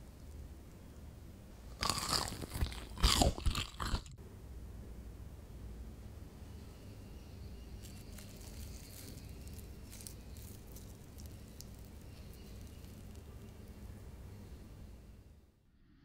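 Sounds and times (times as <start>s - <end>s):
faint low hum: 0.0s - 16.0s
crust crackling: 1.7s - 4.2s, 7.6s - 14.4s
soft squishing: 7.4s - 14.8s.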